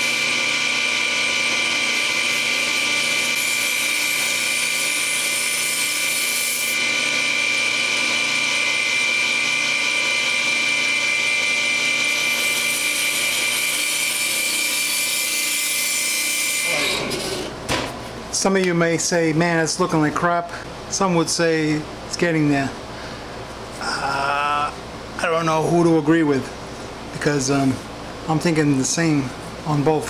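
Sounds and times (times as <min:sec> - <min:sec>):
belt grinder whining: 0:00.0 - 0:17.6.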